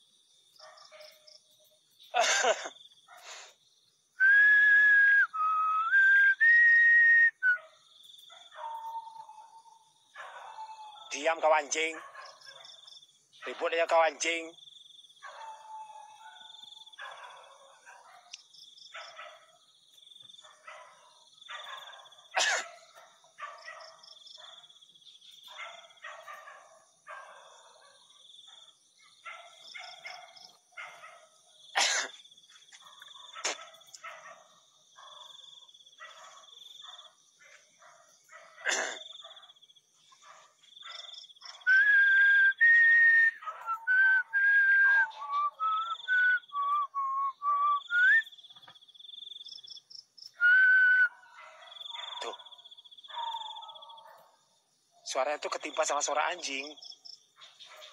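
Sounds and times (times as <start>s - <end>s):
crickets chirring: 0.0s - 57.9s
dogs barking: 0.5s - 3.6s, 7.5s - 14.4s, 15.1s - 41.8s, 43.3s - 46.5s, 49.9s - 57.9s
person whistling: 4.2s - 7.6s, 41.7s - 48.2s, 50.4s - 51.1s.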